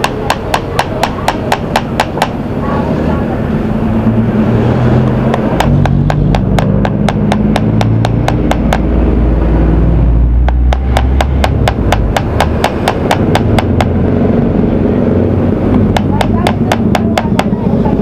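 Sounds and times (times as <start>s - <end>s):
hammer pounding metal: 0.0s - 2.4s, 5.3s - 8.9s, 10.5s - 14.0s, 15.9s - 17.6s.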